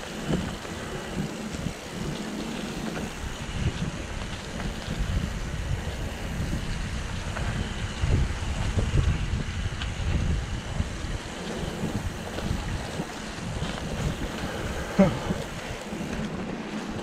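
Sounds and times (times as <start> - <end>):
bike rumbling over rough trail: 0.0 - 17.0
wind buffeting microphone: 0.0 - 17.0.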